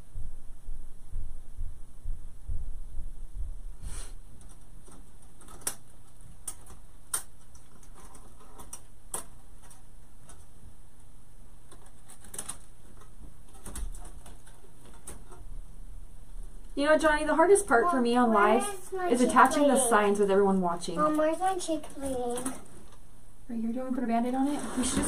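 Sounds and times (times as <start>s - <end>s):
low steady hum: 0.0s - 25.0s
wire clicks and rustles: 4.3s - 15.7s.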